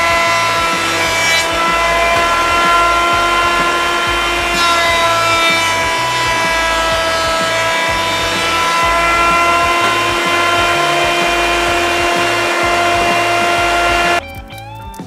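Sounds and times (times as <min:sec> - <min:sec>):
electric jointer whining: 0:00.0 - 0:14.2
background music with bass line: 0:00.0 - 0:15.0.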